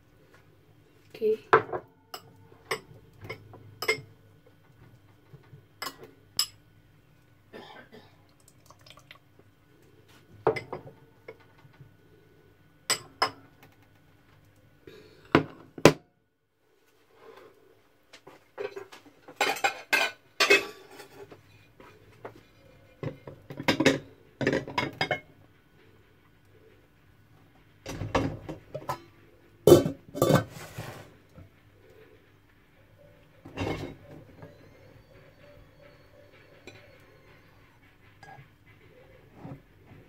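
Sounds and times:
faint steady hum: 0:00.0 - 0:40.0
crockery clinking and clattering: 0:01.6 - 0:04.2, 0:18.6 - 0:21.3, 0:29.7 - 0:30.6, 0:33.4 - 0:34.6.

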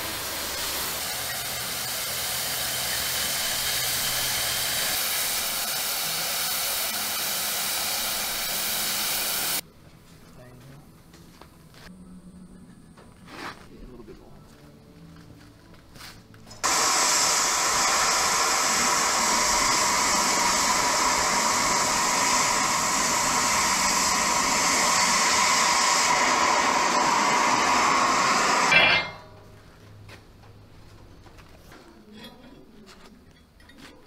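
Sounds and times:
cutting torch hissing: 0:00.0 - 0:09.6, 0:16.6 - 0:29.2.

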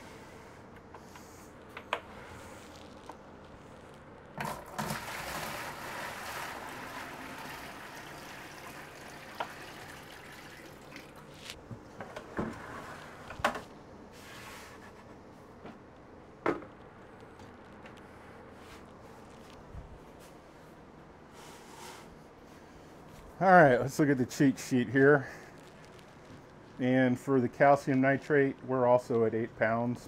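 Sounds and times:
tap water splashing into bucket: 0:04.4 - 0:11.2.

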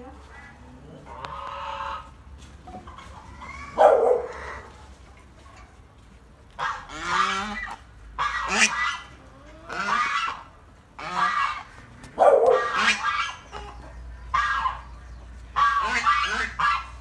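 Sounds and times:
goose honking: 0:06.6 - 0:09.1, 0:09.7 - 0:11.7, 0:12.5 - 0:13.6, 0:15.5 - 0:17.0.

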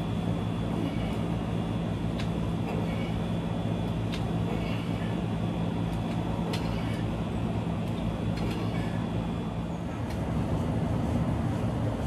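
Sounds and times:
constant rumble: 0:00.0 - 0:12.0
low mechanical hum: 0:00.0 - 0:12.0.

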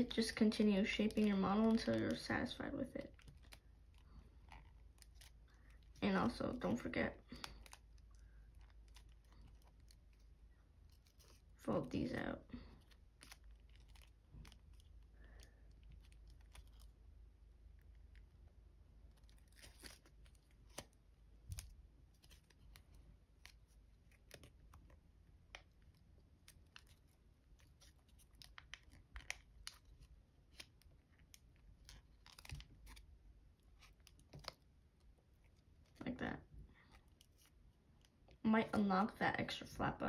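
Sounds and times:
foil paper crinkling: 0:00.1 - 0:17.1, 0:19.1 - 0:25.0.

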